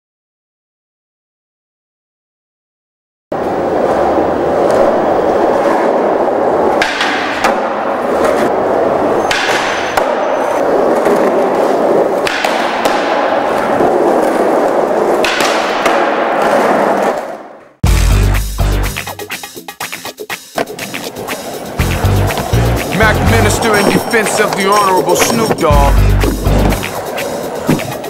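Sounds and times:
skateboard clacks: 3.4s - 17.7s, 19.3s - 28.0s
skateboard wheels rolling on tiles: 3.4s - 17.8s, 20.6s - 28.0s.

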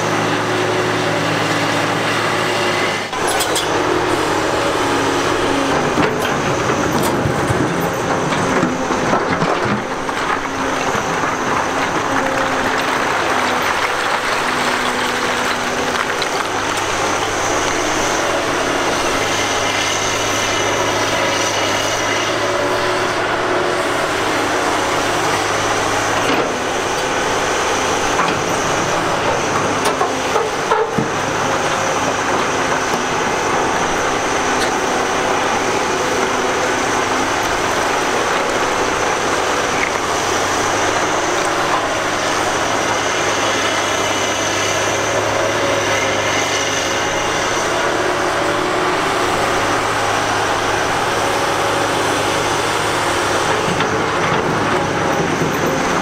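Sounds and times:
heavy machinery din: 0.0s - 56.0s.

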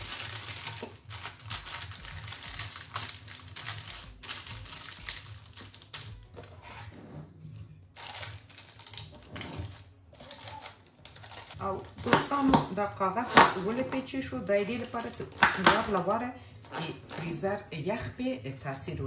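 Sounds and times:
paper crinkling and rustling: 0.0s - 7.0s, 7.9s - 12.5s.

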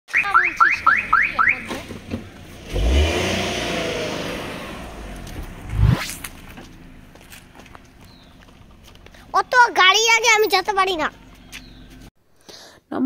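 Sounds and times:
car alarm chirping: 0.1s - 1.8s
car engine starting and revving: 0.8s - 9.4s
rising whoosh: 2.6s - 7.1s.

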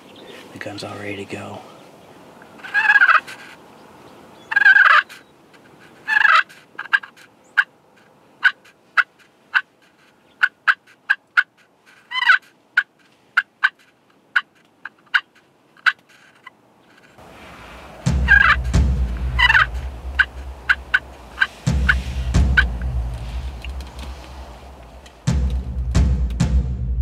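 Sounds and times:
turkey friction call clucks: 2.4s - 3.6s, 4.4s - 25.6s
turkey friction call purrs: 2.6s - 3.6s, 4.5s - 7.3s, 17.8s - 25.2s.

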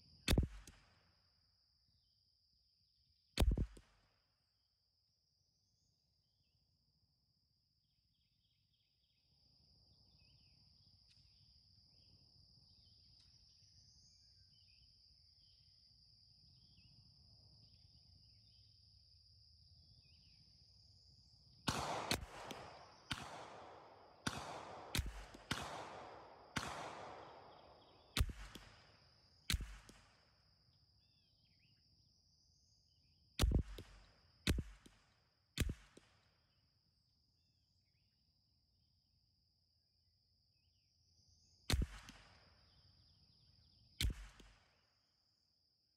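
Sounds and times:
rifle shots with echo: 0.3s - 1.0s, 21.7s - 30.3s, 33.4s - 36.2s, 41.7s - 42.4s, 44.0s - 44.8s
faint chirps: 7.8s - 19.1s, 25.8s - 34.3s.

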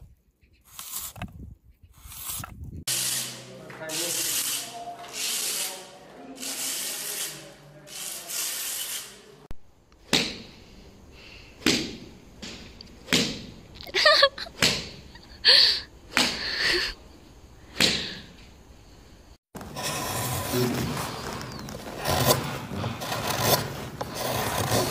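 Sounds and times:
tool rubbing across wall: 1.9s - 9.4s, 19.6s - 24.9s.

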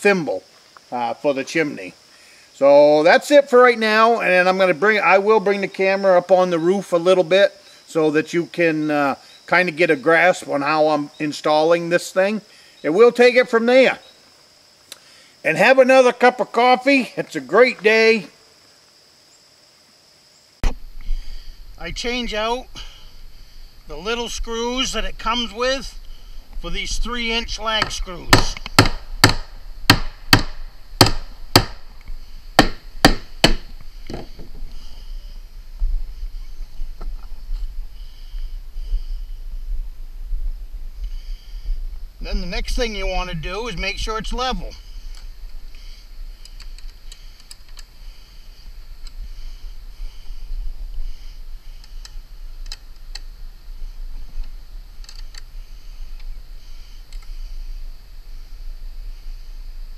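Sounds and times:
low steady rumble: 20.7s - 47.2s
hammer striking screws into wood: 27.8s - 31.8s, 32.6s - 34.5s.

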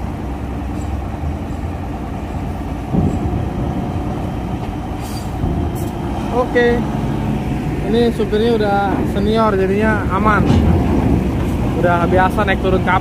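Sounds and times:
bus diesel engine running: 0.0s - 13.0s
loud thump: 2.8s - 6.1s, 10.4s - 11.6s.

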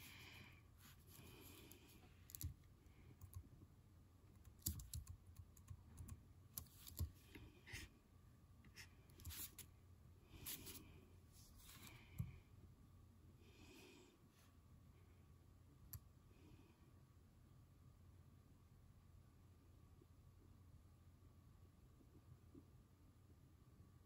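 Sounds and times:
keyboard and mouse clicks: 2.3s - 2.6s, 4.4s - 7.1s.

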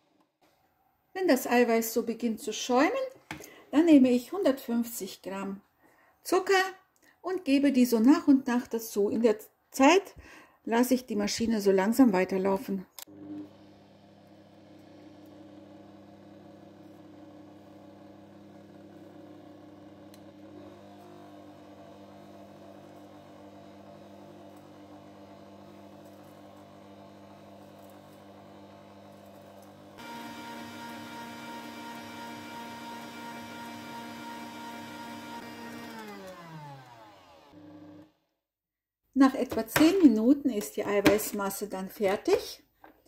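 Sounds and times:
electric mixer motor whine: 13.1s - 38.2s.

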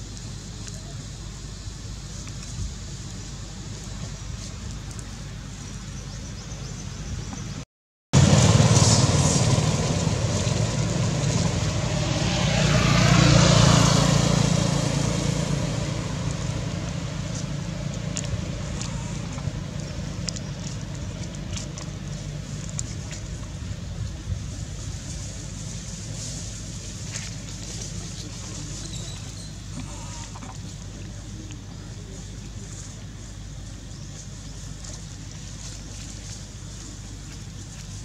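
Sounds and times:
motor vehicle passing by: 8.2s - 23.4s.

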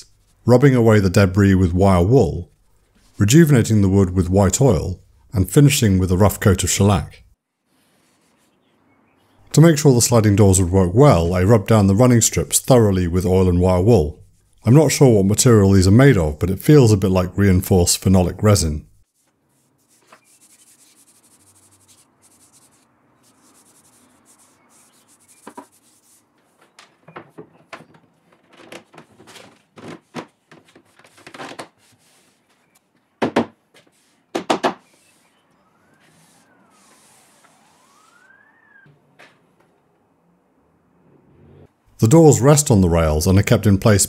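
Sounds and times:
faint rubbing: 7.6s - 8.7s, 19.0s - 32.9s, 33.8s - 34.3s, 34.9s - 38.3s
distant siren wailing: 35.0s - 41.6s.

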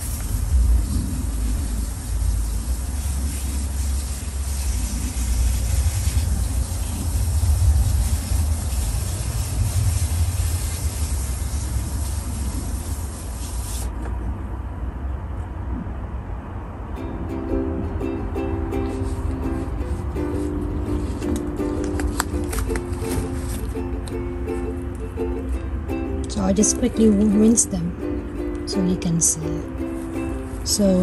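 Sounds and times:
low rumble: 0.0s - 13.6s.

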